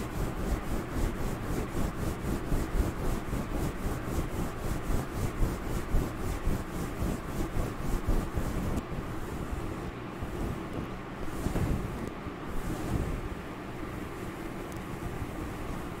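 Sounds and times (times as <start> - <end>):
fingers scratching fur microphone cover: 0.0 - 9.5, 10.4 - 13.1.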